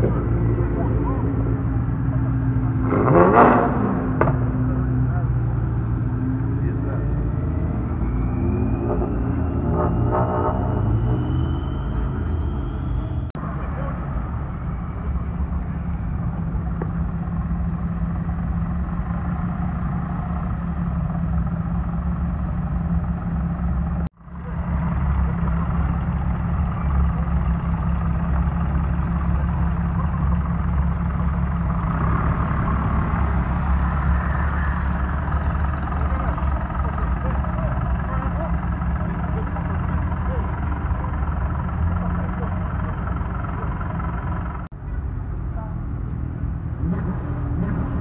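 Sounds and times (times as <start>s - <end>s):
truck engine idling: 11.6s - 46.7s.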